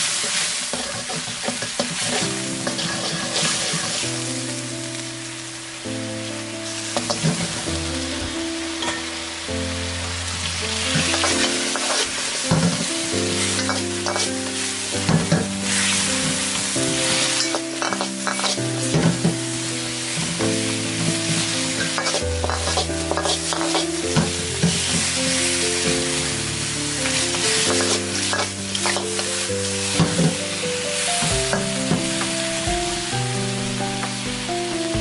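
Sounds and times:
metal ladle scraping a wok: 0:00.0 - 0:04.1, 0:10.8 - 0:19.3, 0:21.0 - 0:25.6, 0:27.1 - 0:30.4
chicken wings sizzling in oil: 0:00.0 - 0:35.0
background music: 0:01.9 - 0:35.0.

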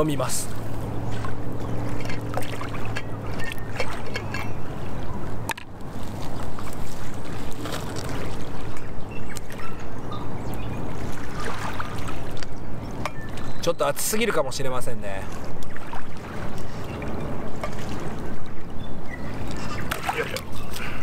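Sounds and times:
wind: 0:00.0 - 0:21.0
low motor hum: 0:00.5 - 0:06.8.

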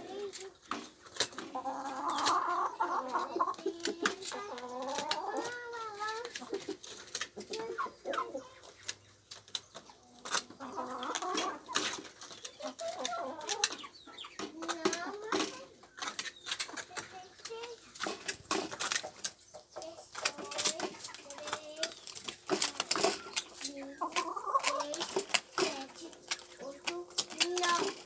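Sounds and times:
hens clucking: 0:00.0 - 0:28.0
beaks pecking: 0:00.7 - 0:28.0.

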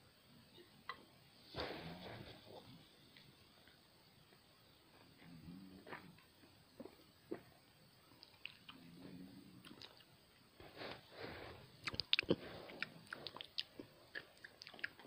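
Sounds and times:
breathing: 0:10.6 - 0:11.8, 0:12.4 - 0:12.9
wet lip smacks and mouth clicks: 0:11.8 - 0:15.0.

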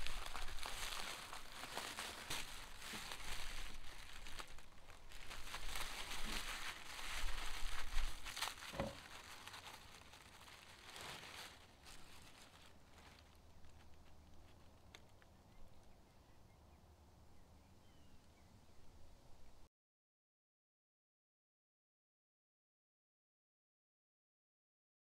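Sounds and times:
paper crinkling and tearing: 0:00.0 - 0:15.3.

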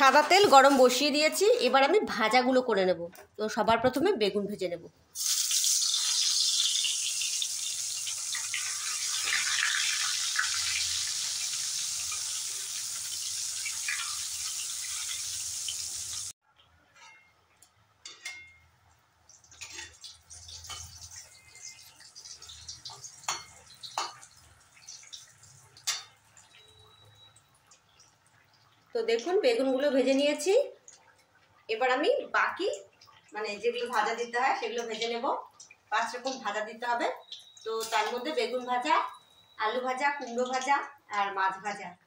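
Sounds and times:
vegetables sizzling in hot oil: 0:00.0 - 0:01.8, 0:05.1 - 0:16.4, 0:19.4 - 0:27.3, 0:31.7 - 0:41.5.

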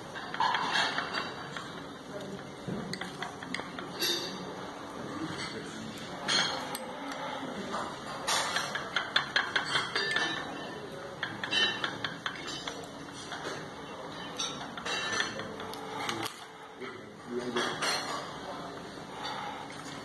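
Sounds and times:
cutlery clinking on china: 0:00.2 - 0:04.5, 0:05.3 - 0:16.5.

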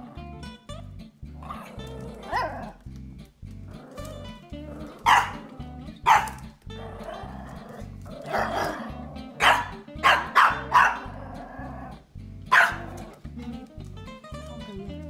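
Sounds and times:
background music with steady beat: 0:00.0 - 0:15.0
small dogs yapping: 0:01.5 - 0:02.8, 0:03.7 - 0:13.3.

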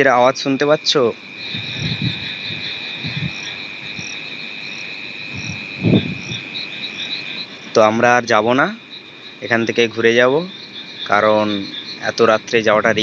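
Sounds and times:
crickets trilling: 0:00.0 - 0:13.0
low rumble: 0:01.5 - 0:04.1, 0:05.3 - 0:06.4.

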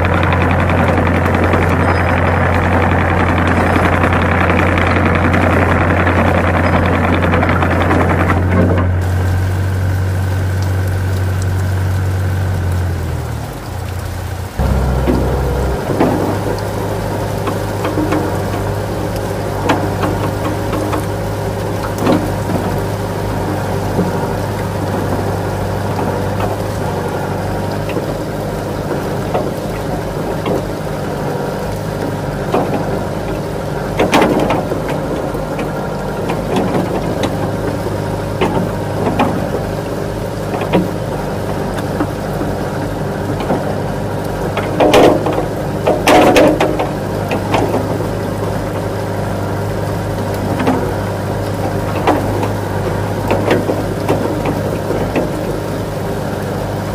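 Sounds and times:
engine-like hum: 0:00.0 - 0:56.9
short knocks and clatters: 0:32.1 - 0:48.9.

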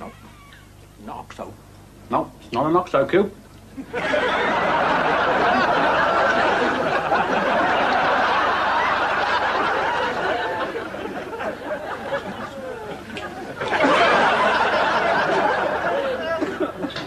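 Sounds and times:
audience laughing: 0:03.8 - 0:17.0.

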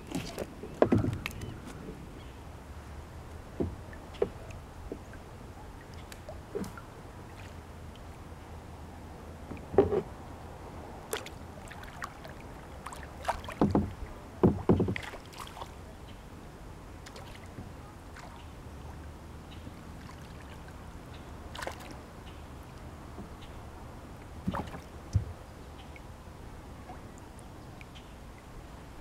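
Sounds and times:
water splashing against kayak hull: 0:00.0 - 0:02.3, 0:03.2 - 0:07.6, 0:11.1 - 0:15.8, 0:21.4 - 0:22.0, 0:24.2 - 0:25.4.

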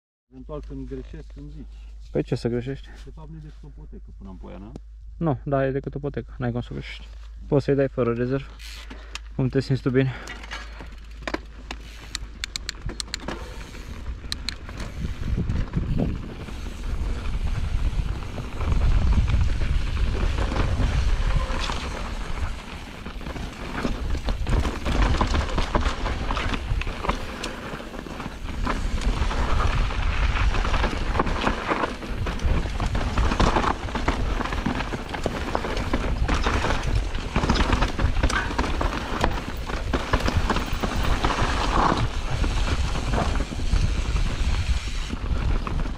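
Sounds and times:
bike clicks and rattles: 0:08.4 - 0:45.9
wind buffeting microphone: 0:13.5 - 0:27.4, 0:28.4 - 0:45.9.

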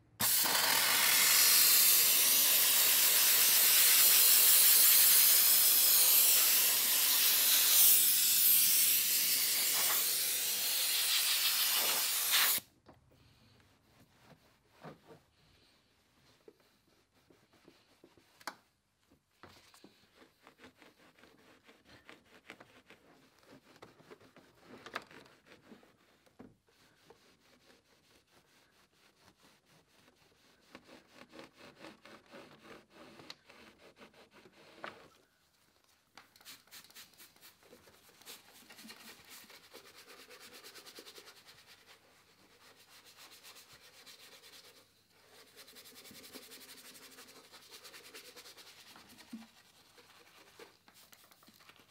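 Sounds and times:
towel rubbing plastic: 0:13.6 - 0:51.9.

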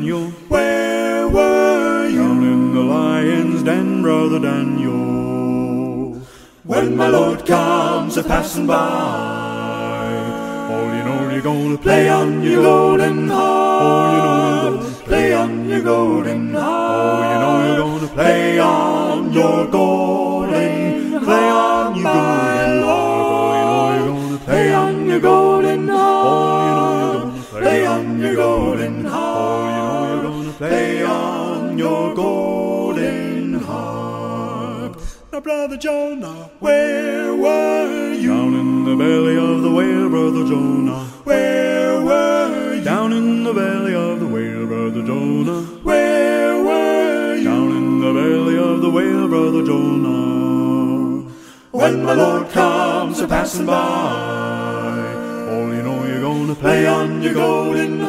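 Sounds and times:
vocal quartet singing a cappella: 0:00.0 - 0:58.0.

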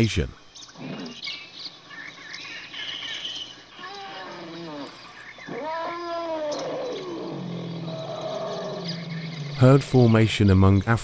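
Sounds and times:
elephant calling: 0:02.8 - 0:10.1.

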